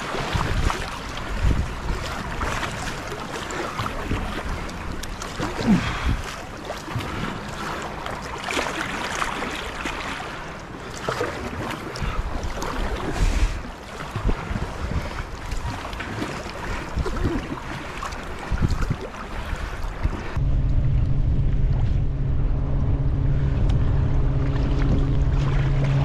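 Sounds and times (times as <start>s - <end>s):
wind buffeting microphone: 0.0s - 5.0s, 5.6s - 7.8s, 12.0s - 26.0s
paddle strokes in water: 0.0s - 20.4s
water splashing against hull: 0.0s - 26.0s.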